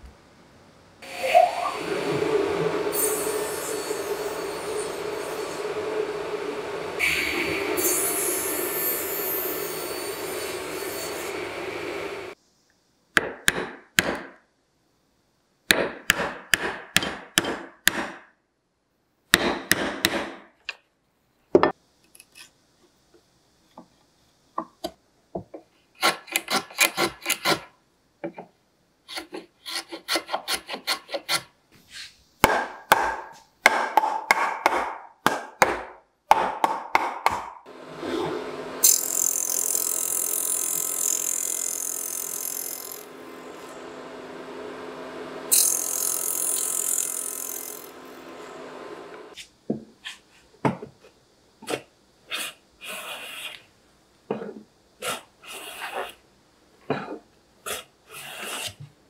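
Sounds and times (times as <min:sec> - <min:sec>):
table saw cutting board: 0:07.0 - 0:12.3, 0:37.7 - 0:49.4.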